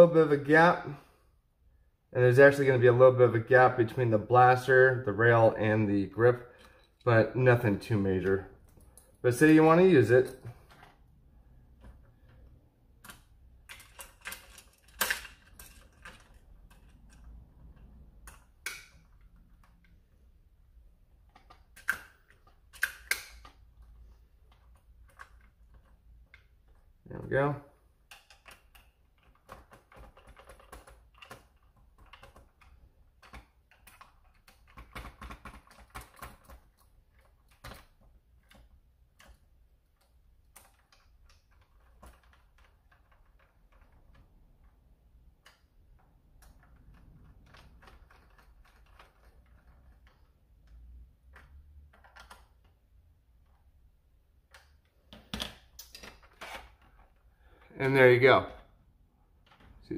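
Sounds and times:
plastic parts clicking together: 11.7 - 20.2, 21.1 - 57.7.

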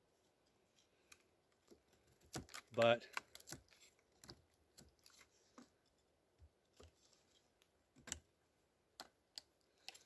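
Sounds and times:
knife shaving wooden stick: 0.2 - 6.1.

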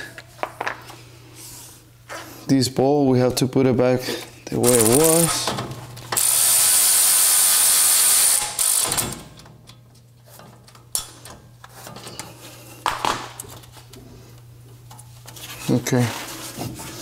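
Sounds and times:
cordless ratchet running: 6.2 - 9.2.

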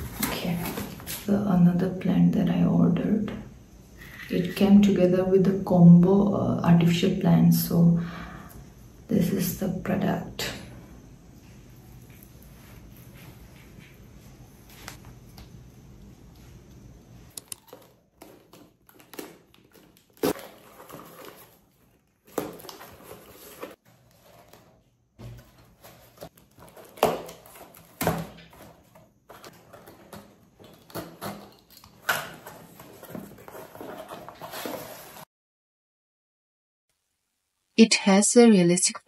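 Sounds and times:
cardboard box rustling and scraping: 20.3 - 31.6, 32.2 - 35.3.

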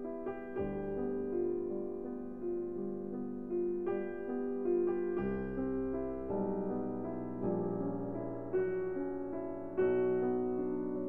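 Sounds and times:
slow piano melody: 0.0 - 11.0.

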